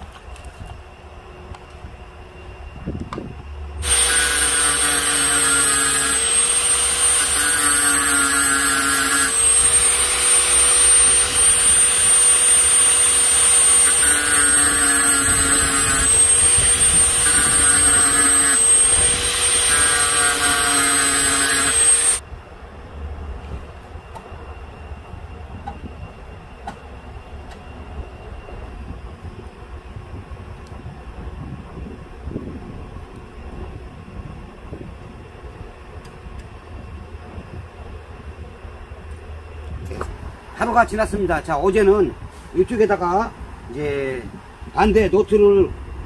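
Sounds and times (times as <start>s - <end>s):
angle grinder grinding steel: 3.8s - 22.2s.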